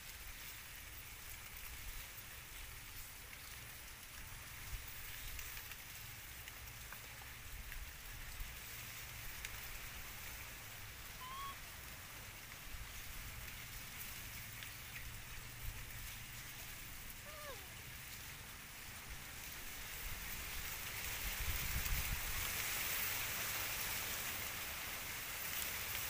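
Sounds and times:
outdoor hiss and low rumble: 0.0s - 26.0s
short chirp: 11.2s - 11.6s.

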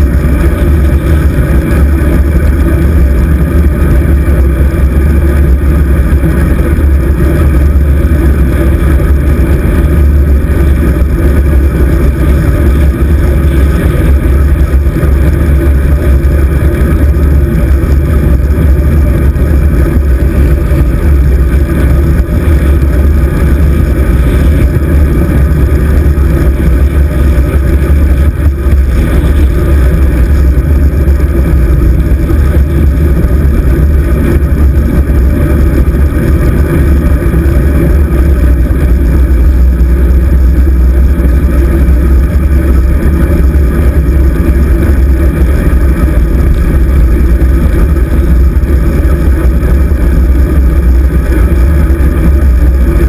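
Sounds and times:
wind buffeting microphone: 0.0s - 53.0s.

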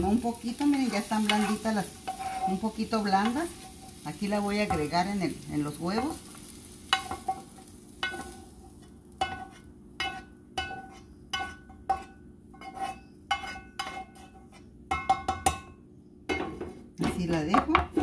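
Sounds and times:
spatula scraping a frying pan: 0.0s - 4.8s, 6.4s - 15.1s.

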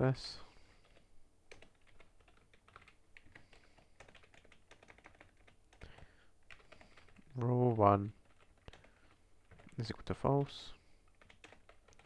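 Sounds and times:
keyboard typing: 0.8s - 7.4s, 8.2s - 10.0s, 11.1s - 12.0s.

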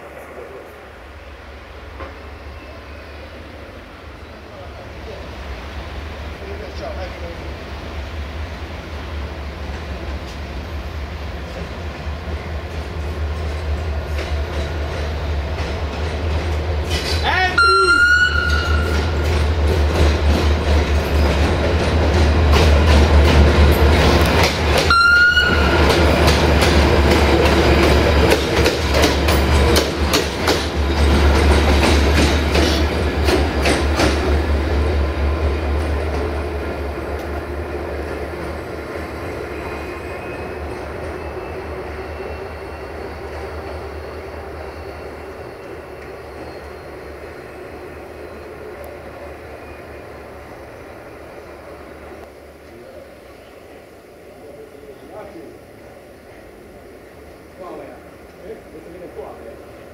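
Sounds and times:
locomotive engine droning: 9.6s - 55.1s
train wheels clicking over rail joints: 11.4s - 17.4s, 18.3s - 39.8s.

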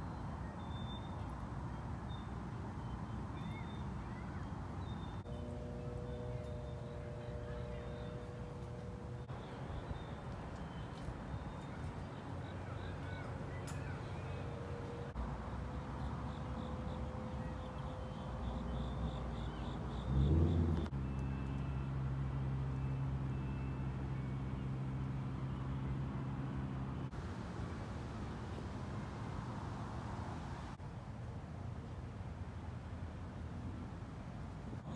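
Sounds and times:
low mechanical hum: 5.0s - 15.2s.

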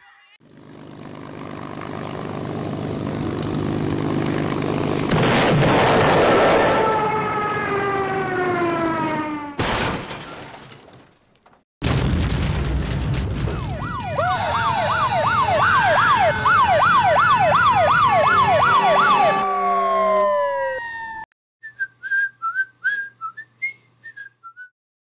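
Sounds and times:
explosion rumble: 4.8s - 6.8s, 11.8s - 14.3s
sirens wailing: 6.2s - 9.6s, 13.4s - 21.3s.

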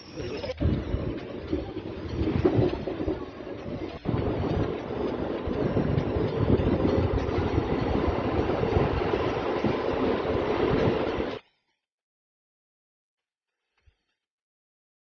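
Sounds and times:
train wheels rumbling on rails: 0.0s - 11.4s.

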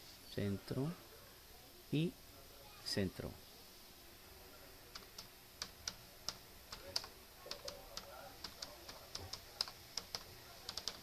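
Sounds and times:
computer keyboard key clicks: 4.9s - 11.0s.

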